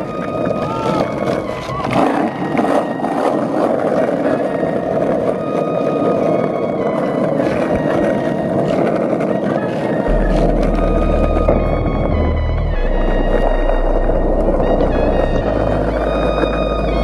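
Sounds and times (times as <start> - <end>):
skateboard wheels rolling on asphalt: 0.0 - 17.0.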